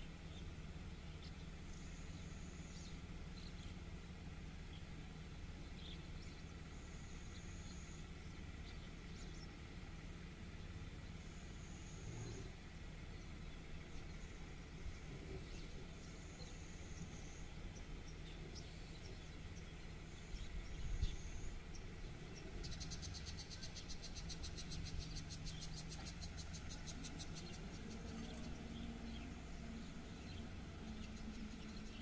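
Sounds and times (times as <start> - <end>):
bird chirps: 15.3 - 32.0.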